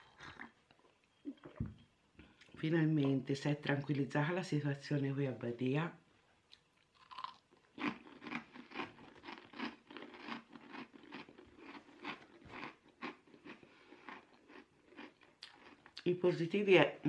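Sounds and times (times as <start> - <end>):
person chewing crunchy food: 6.5 - 16.0.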